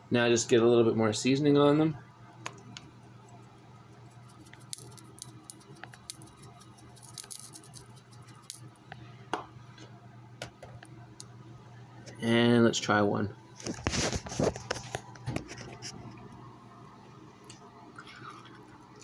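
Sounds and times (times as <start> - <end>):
salt grains pattering on plate: 4.1 - 8.6.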